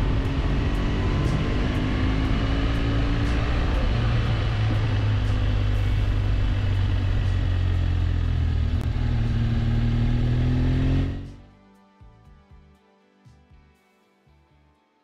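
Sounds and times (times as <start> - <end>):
motorcycle engine running: 0.0 - 11.4.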